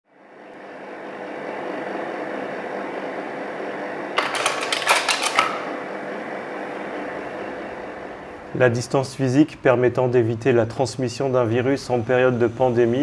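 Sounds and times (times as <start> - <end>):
steady mechanical hum: 0.1 - 13.0.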